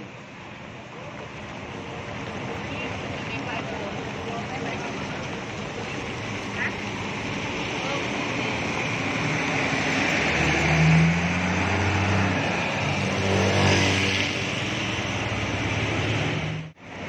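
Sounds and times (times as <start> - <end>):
tyres on wet road: 0.0 - 17.0
diesel engine pulling away: 0.3 - 17.0.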